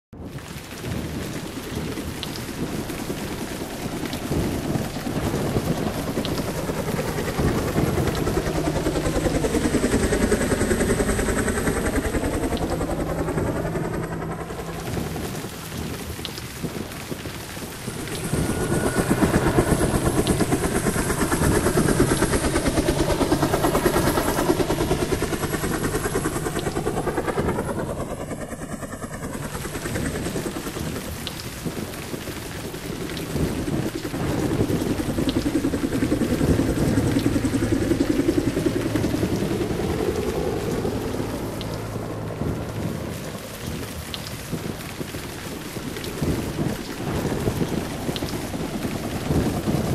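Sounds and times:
heavy rain: 0:00.1 - 0:49.9
thunder rumbling: 0:00.2 - 0:49.9
sweeping whoosh: 0:17.6 - 0:30.7.

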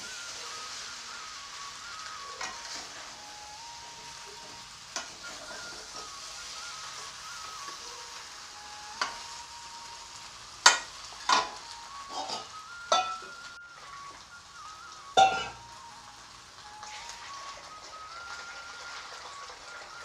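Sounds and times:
food sizzling in a pan: 0:00.0 - 0:20.0
spatula clanking against pan: 0:10.6 - 0:13.2, 0:15.2 - 0:15.6
spatula scraping pan: 0:10.7 - 0:13.2.

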